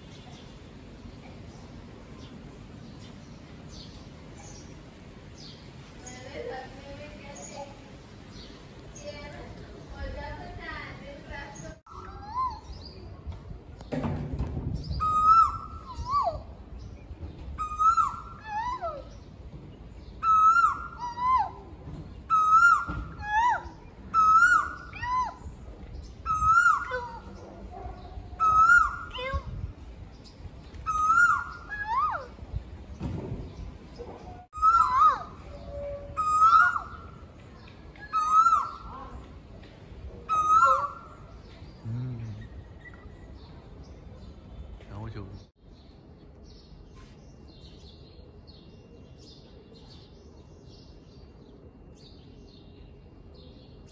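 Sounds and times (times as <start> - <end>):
bird calling: 14.9 - 16.6, 17.6 - 19.2, 20.1 - 29.4, 30.8 - 32.4, 34.0 - 39.3, 40.2 - 44.7.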